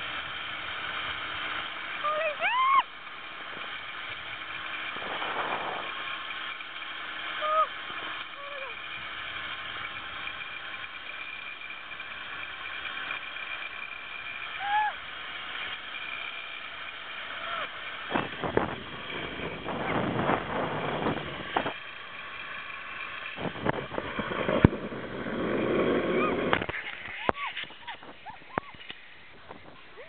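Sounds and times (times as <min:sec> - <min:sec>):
buffeting and rattling: 0:00.0 - 0:30.0
zip-line trolley whirring: 0:00.0 - 0:30.0
wind on microphone: 0:04.9 - 0:06.0, 0:18.1 - 0:21.8, 0:23.4 - 0:30.0.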